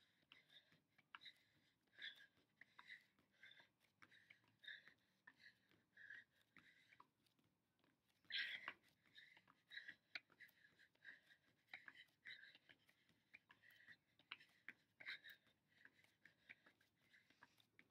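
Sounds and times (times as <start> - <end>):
quick rhythmic breathing: 0.0 - 17.9.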